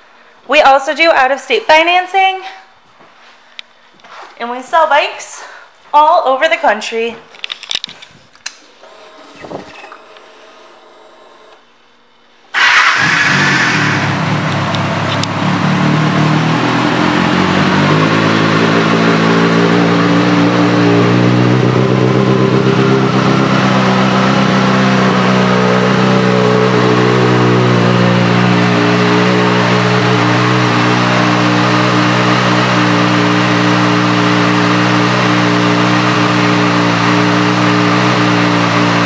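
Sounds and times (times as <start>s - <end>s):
motorcycle engine idling: 12.6s - 39.0s.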